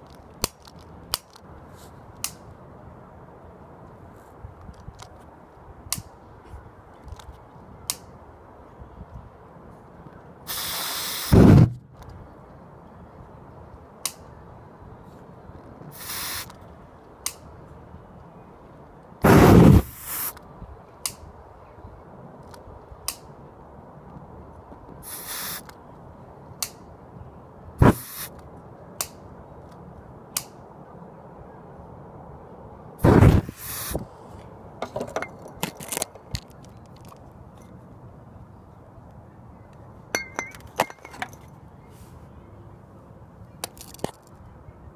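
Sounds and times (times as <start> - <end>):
aerosol can hissing: 10.5 - 11.6, 16.0 - 16.5, 19.3 - 20.3, 25.1 - 25.6, 27.8 - 28.3, 33.1 - 34.0
sharp bang: 11.3 - 12.0.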